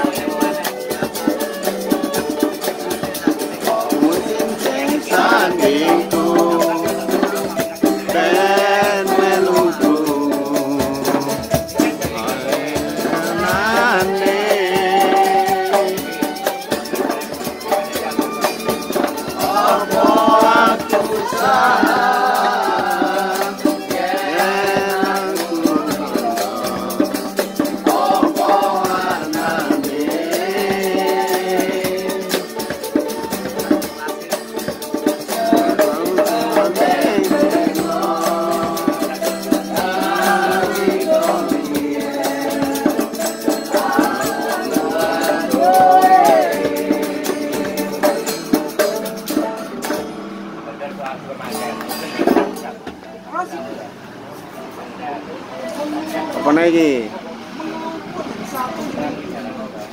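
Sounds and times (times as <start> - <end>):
person singing: 0.0 - 50.3.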